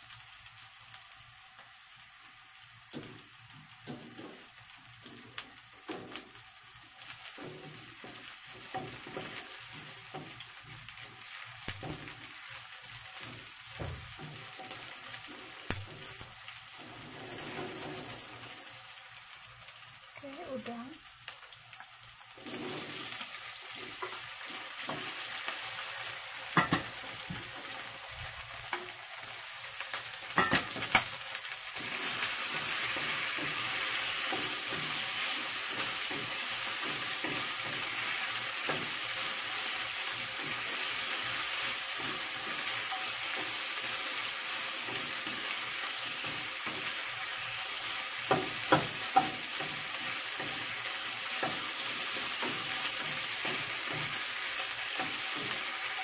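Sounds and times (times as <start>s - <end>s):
shrimp sizzling in hot oil: 0.0s - 56.0s
knocks against a pan: 11.7s - 12.2s, 26.6s - 27.5s, 30.4s - 31.0s, 48.3s - 49.4s.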